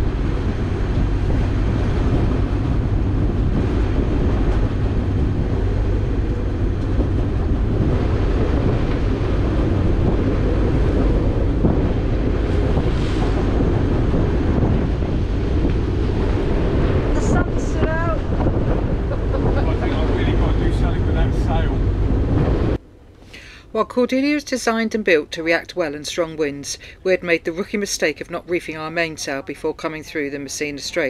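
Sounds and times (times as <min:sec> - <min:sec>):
sea rushing past: 0:00.0 - 0:22.8
wind buffeting microphone: 0:00.0 - 0:22.8.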